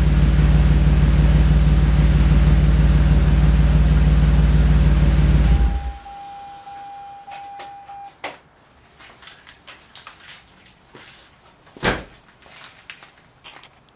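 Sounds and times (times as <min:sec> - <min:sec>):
steady electronic tone: 0:05.4 - 0:07.9
loud thump: 0:11.8 - 0:12.1.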